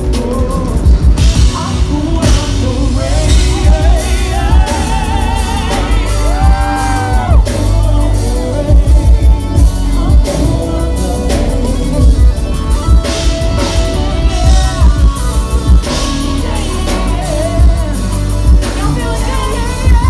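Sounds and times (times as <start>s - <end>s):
drum kit: 0.0s - 20.0s
heavy bass: 0.0s - 20.0s
women singing: 0.0s - 20.0s.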